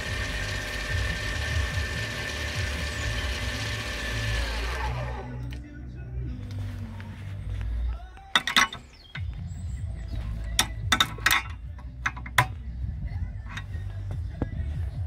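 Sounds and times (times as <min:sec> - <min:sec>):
sharp metallic clicks and knocks: 0:08.3 - 0:09.4, 0:10.4 - 0:12.6.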